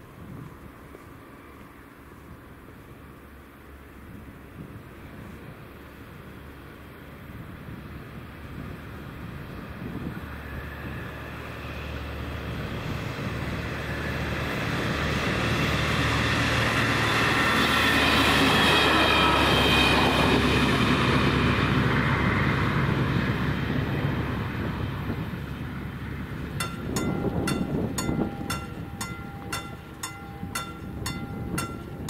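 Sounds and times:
passenger train passing: 0:00.0 - 0:32.0.

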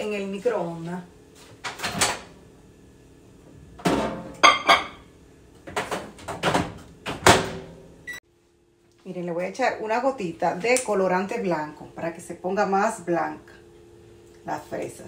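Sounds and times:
microwave door thunks and clacks: 0:05.7 - 0:07.7.

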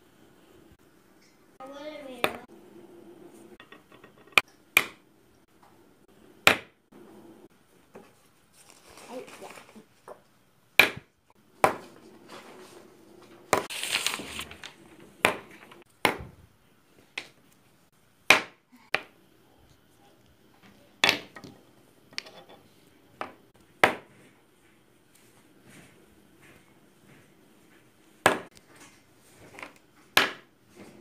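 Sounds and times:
paper rustling: 0:08.0 - 0:10.1, 0:13.5 - 0:15.8.

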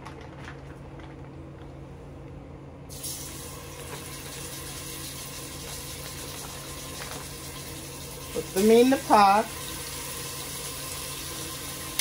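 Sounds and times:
meat sizzling in hot oil: 0:02.9 - 0:12.0.

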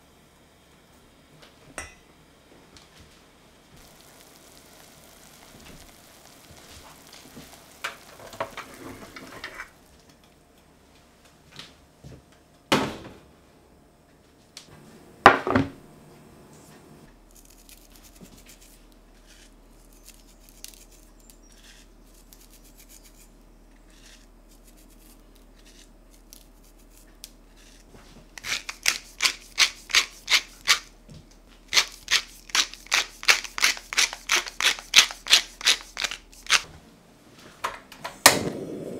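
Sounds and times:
spice mill grinding: 0:03.8 - 0:08.8, 0:17.3 - 0:30.9, 0:31.6 - 0:36.7.

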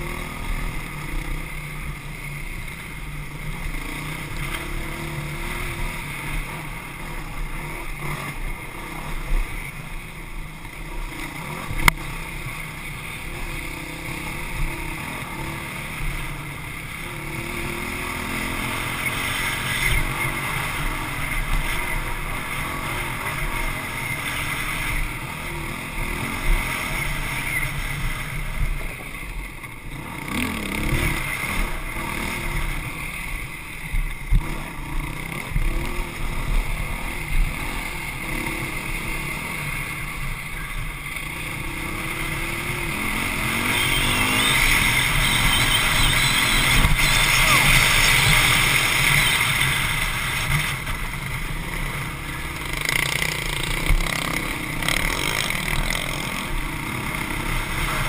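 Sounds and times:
dirt bike engine running: 0:00.0 - 0:58.0.

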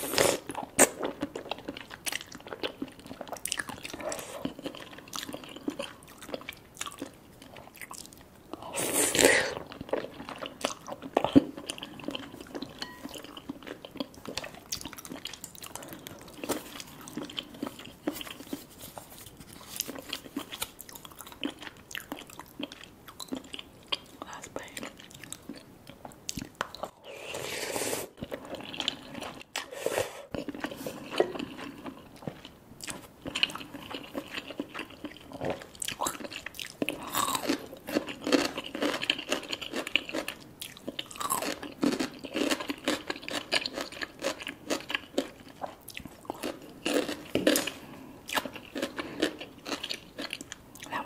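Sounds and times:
chewing with wet clicks: 0:00.5 - 0:08.3, 0:09.7 - 0:18.4, 0:19.9 - 0:27.0, 0:30.3 - 0:51.0
slurping noodles: 0:27.0 - 0:31.2.

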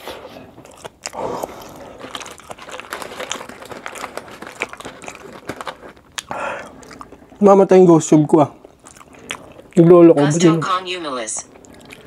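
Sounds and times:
crunchy food being chewed: 0:00.0 - 0:09.9, 0:11.4 - 0:12.0
paper wrapper crinkling: 0:00.6 - 0:07.6.

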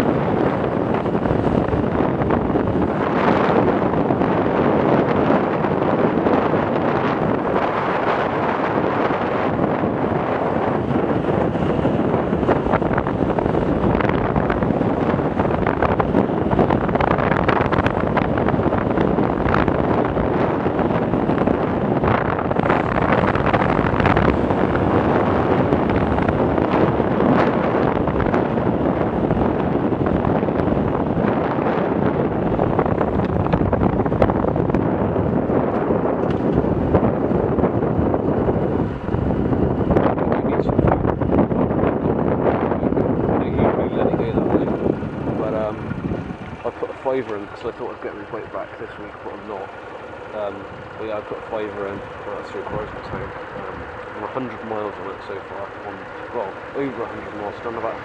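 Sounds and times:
motorcycle running: 0:00.0 - 0:58.0
wind rush on microphone: 0:00.0 - 0:58.0.

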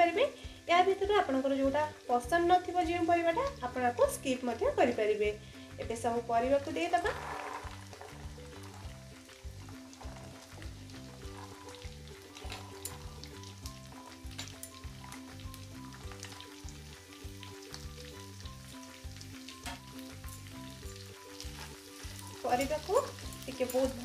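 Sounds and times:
light background music: 0:00.0 - 0:24.0
vegetables sizzling in oil: 0:00.0 - 0:24.0
oil pops and crackles: 0:06.9 - 0:18.6.

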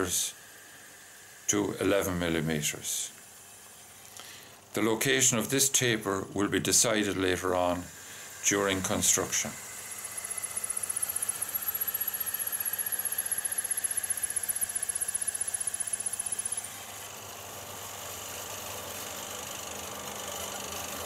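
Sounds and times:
chattering cut with high whine: 0:00.0 - 0:21.0
wood lathe running: 0:06.3 - 0:21.0.

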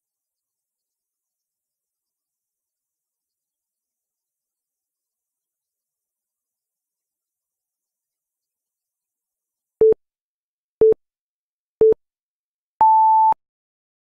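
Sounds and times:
short low beeps: 0:12.8 - 0:13.4.

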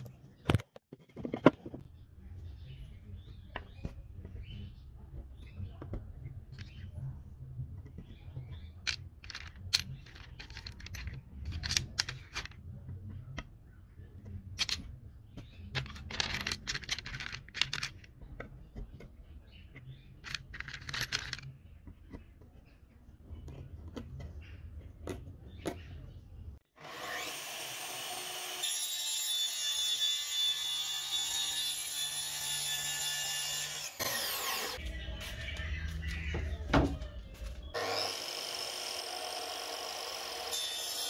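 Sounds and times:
wooden dowels clicking: 0:08.8 - 0:12.6, 0:15.7 - 0:18.5, 0:20.2 - 0:21.5.

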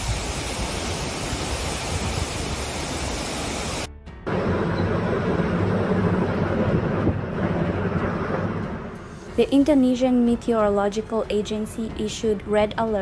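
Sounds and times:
heavy rain: 0:00.0 - 0:08.8
wind rumbling on microphone: 0:00.0 - 0:09.5.

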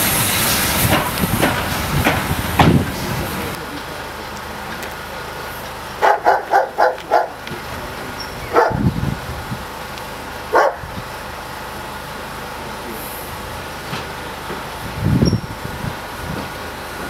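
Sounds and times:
dog barking: 0:06.0 - 0:07.4, 0:08.5 - 0:08.8, 0:10.5 - 0:10.9.

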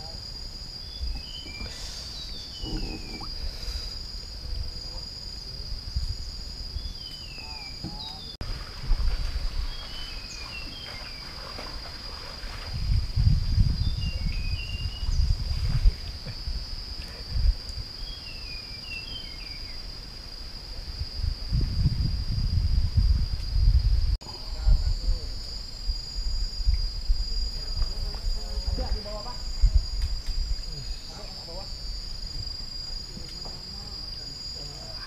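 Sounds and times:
insects shrilling: 0:00.0 - 0:08.8
low rumbling microphone noise: 0:00.0 - 0:10.5, 0:12.6 - 0:18.2, 0:20.6 - 0:34.5
bird chirping: 0:00.8 - 0:03.3, 0:18.0 - 0:19.8.

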